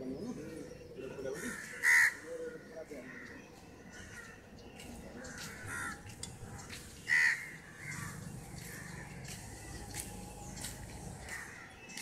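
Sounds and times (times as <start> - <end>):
crows cawing: 1.2 - 4.4, 5.2 - 10.0, 11.2 - 12.0.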